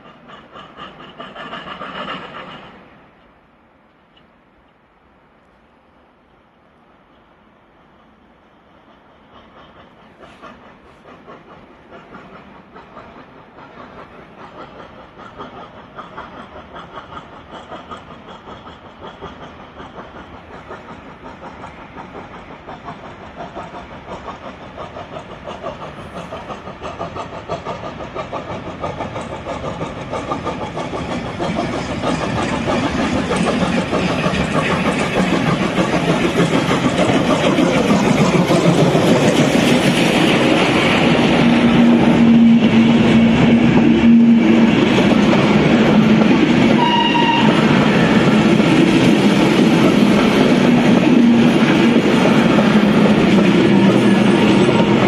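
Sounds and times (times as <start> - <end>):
steam locomotive exhaust beats: 0.0 - 4.9, 5.5 - 55.0
locomotive running gear: 17.7 - 55.0.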